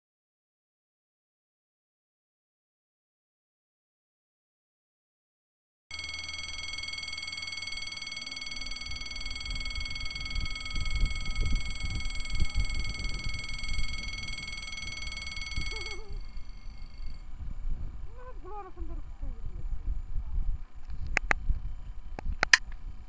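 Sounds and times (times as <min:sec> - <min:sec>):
level-crossing bell ringing: 0:05.9 - 0:17.3
wind rumbling on microphone: 0:08.9 - 0:23.0.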